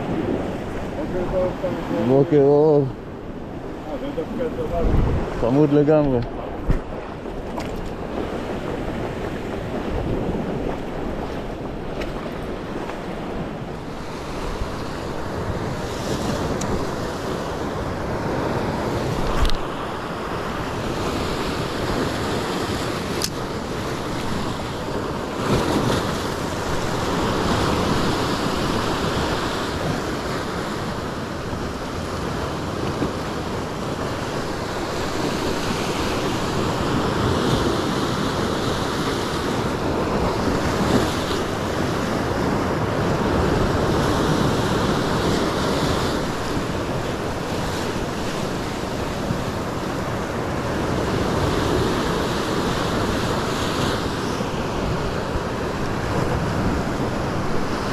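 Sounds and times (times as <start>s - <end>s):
waves breaking on rocks: 0.0s - 57.9s.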